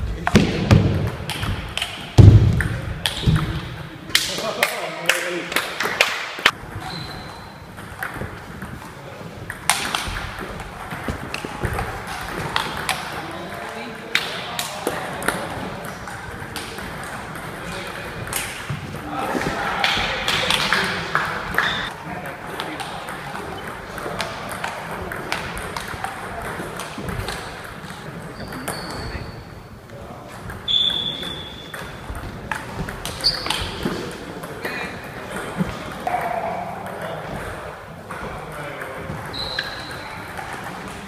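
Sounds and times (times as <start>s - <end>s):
table tennis ball hits: 9.5s - 21.9s.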